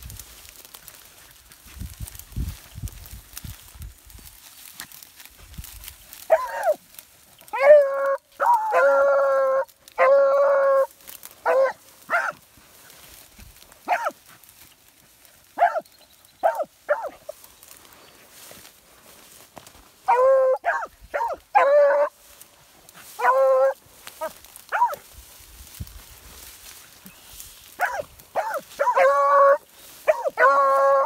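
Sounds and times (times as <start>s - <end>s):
hounds barking: 6.3s - 6.8s, 7.5s - 12.4s, 13.8s - 14.2s, 15.5s - 17.4s, 20.0s - 22.2s, 23.0s - 25.0s, 27.7s - 31.0s
hounds bawling: 6.3s - 6.8s, 7.5s - 12.3s, 20.1s - 22.1s, 23.2s - 25.0s, 27.8s - 31.0s.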